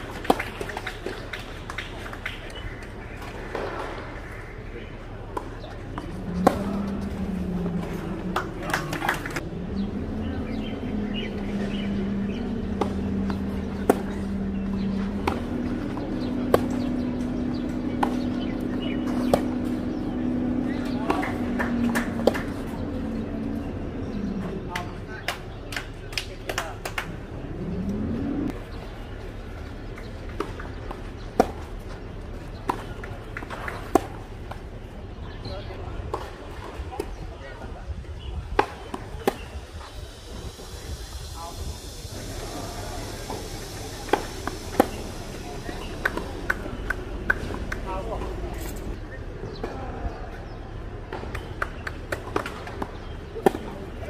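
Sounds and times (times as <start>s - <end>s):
racquets hitting tennis ball: 0.0s - 4.3s, 11.3s - 23.8s, 29.8s - 35.0s, 44.0s - 49.8s, 50.9s - 54.0s
birds chirping: 0.0s - 54.0s
steady low hum: 0.0s - 54.0s
racket hitting tennis ball: 12.4s - 19.9s, 20.7s - 22.8s.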